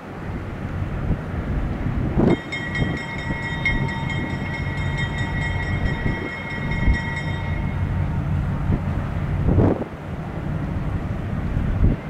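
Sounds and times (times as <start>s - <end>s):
diesel locomotive engine rumbling: 0.0s - 12.0s
wheels squealing on rails: 2.2s - 8.4s.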